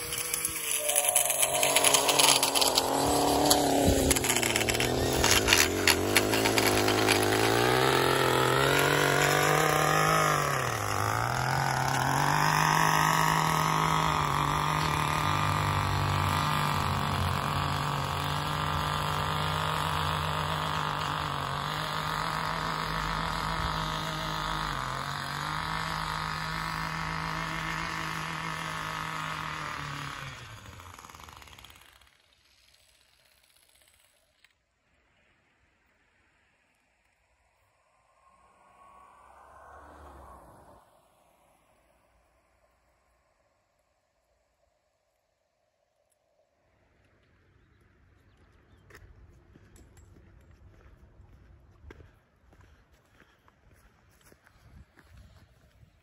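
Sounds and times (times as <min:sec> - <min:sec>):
edger engine running: 0:00.0 - 0:34.2
blade clicking on concrete: 0:00.0 - 0:34.6.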